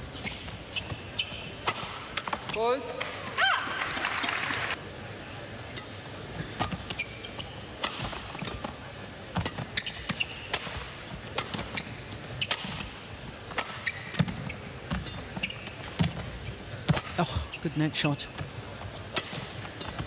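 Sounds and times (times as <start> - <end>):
shoes squeaking on court: 0.0 - 3.6, 5.7 - 20.0
racket hitting shuttlecock: 0.8 - 2.6, 7.8 - 17.2, 19.1 - 20.0.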